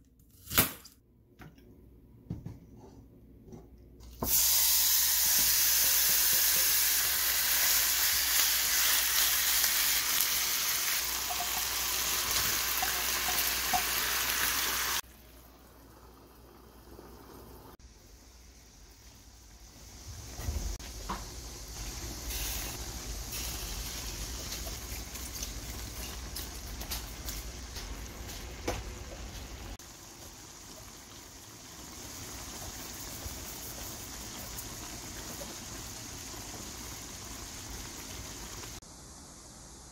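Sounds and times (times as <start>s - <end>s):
sauce bubbling and sizzling in pan: 4.2s - 39.5s.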